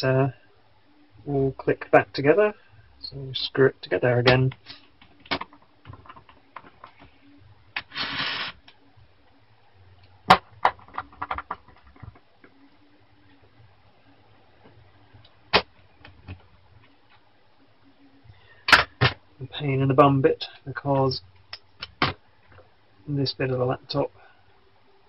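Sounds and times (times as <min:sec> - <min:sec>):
plastic clicks and knocks: 0:04.3 - 0:07.0, 0:10.3 - 0:12.2
scraping rustle on desk: 0:07.8 - 0:08.6.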